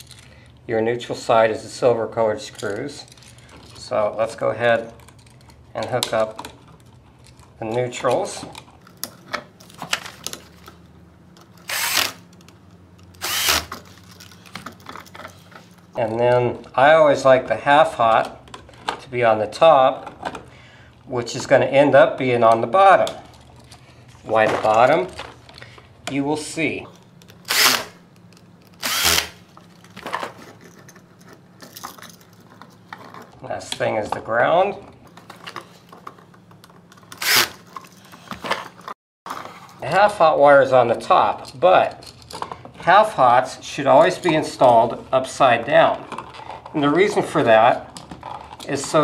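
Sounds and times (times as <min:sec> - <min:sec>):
cordless drill spinning: 0:11.6 - 0:12.3, 0:13.2 - 0:13.9, 0:27.4 - 0:28.0, 0:28.7 - 0:29.4, 0:37.2 - 0:37.6.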